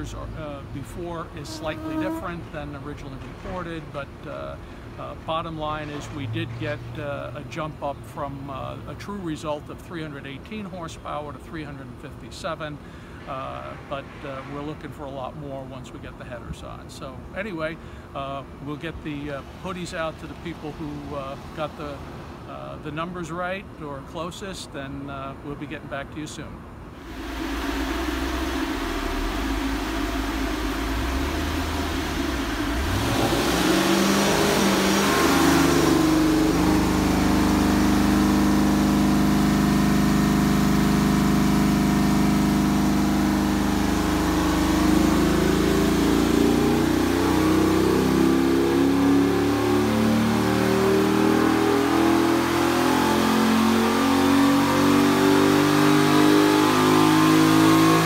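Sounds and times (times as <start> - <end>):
car engine revving on dyno: 0.0 - 7.4, 27.0 - 58.0
rushing noise: 27.0 - 47.8.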